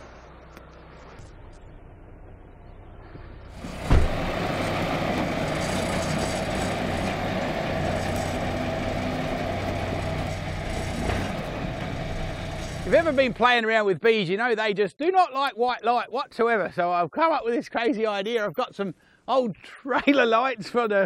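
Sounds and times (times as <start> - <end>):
truck engine starting and running: 0.0 - 13.6.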